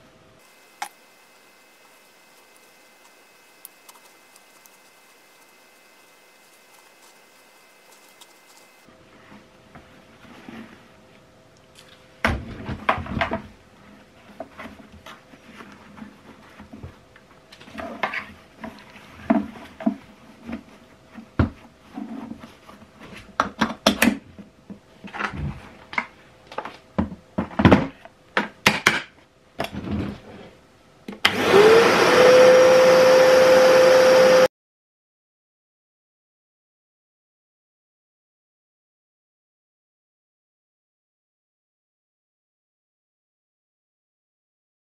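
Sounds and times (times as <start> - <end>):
vacuum cleaner motor whine: 0.4 - 8.9, 31.2 - 34.5.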